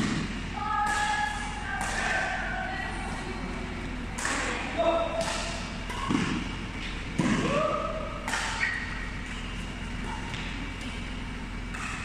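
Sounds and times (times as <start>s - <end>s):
rackets smacking shuttlecock: 0.0s - 2.4s, 4.1s - 12.0s
shoes squeaking on court: 8.5s - 12.0s.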